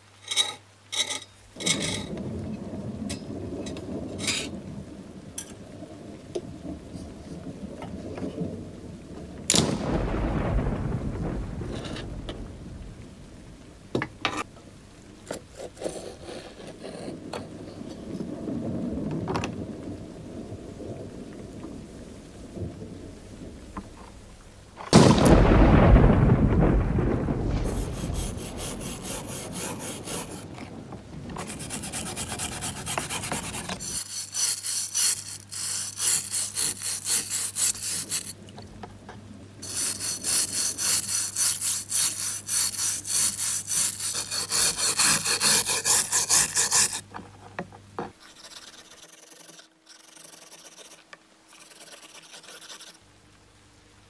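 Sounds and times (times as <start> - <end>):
abrasive rasping strokes: 27.6 - 30.7, 31.4 - 38.4, 39.6 - 47.1.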